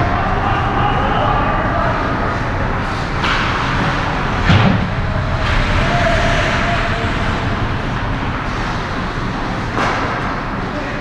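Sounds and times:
low rumble: 0.0 - 10.7
sharp thump: 4.4 - 5.0.

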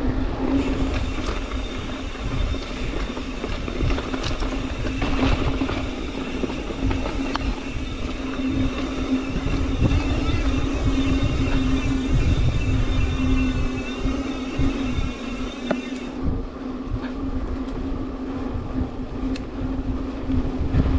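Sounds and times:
wind and tyres rumbling on trail: 0.0 - 20.9
bicycle freewheel buzzing: 0.4 - 16.3.

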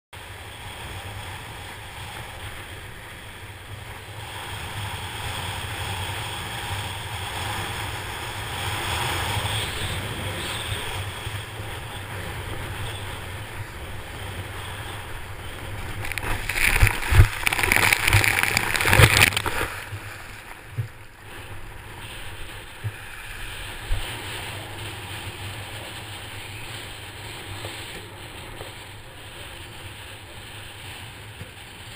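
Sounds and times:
wind buffeting microphone: 0.2 - 31.9
water rushing: 10.0 - 27.6
splashing and spray: 15.6 - 30.0.

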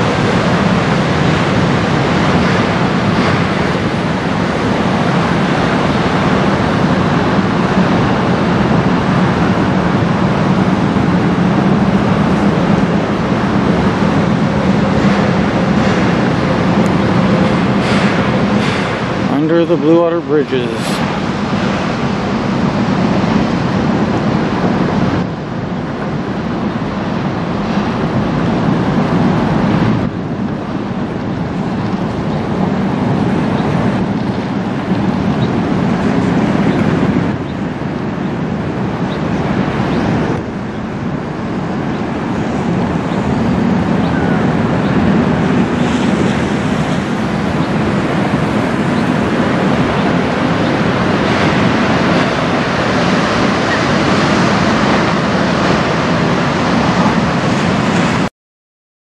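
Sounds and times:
river water moving: 0.0 - 58.3
wind rushing on microphone: 0.0 - 58.3.

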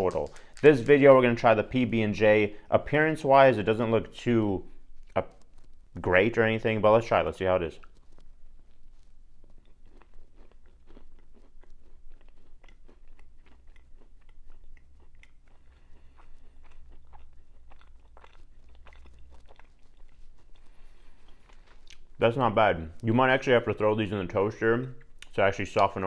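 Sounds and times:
person chewing crunchy pastry: 4.7 - 6.0, 7.8 - 22.2.

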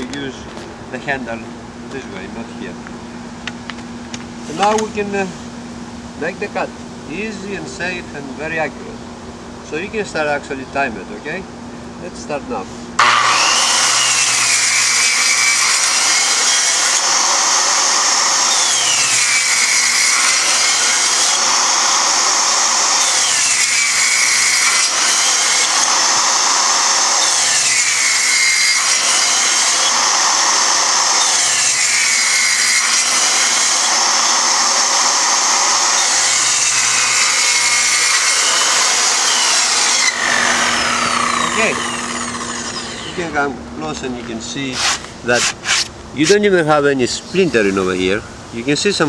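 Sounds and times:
circular saw cutting plywood: 13.0 - 43.6, 44.6 - 46.5.

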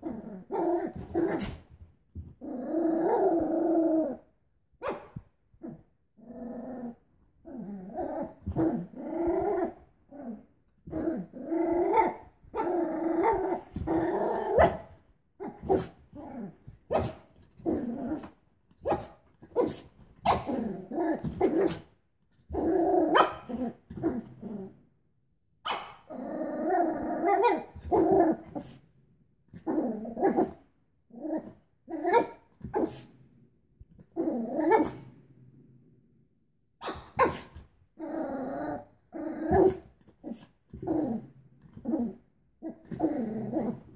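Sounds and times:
puppy growling and barking: 0.0 - 21.9, 22.5 - 24.8, 25.7 - 28.8, 29.6 - 33.1, 34.2 - 35.2, 36.8 - 43.9.

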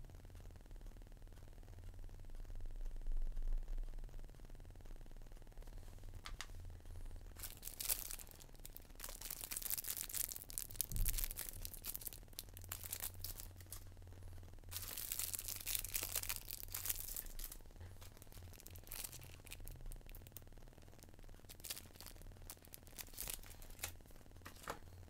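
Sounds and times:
plastic bags crinkling: 7.4 - 13.8, 14.7 - 20.4, 21.4 - 24.7.

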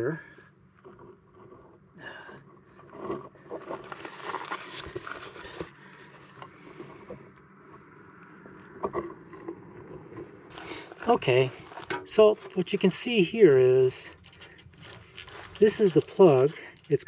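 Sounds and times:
camera handling rustling and scraping: 2.8 - 7.3, 8.8 - 12.9, 13.5 - 17.0.

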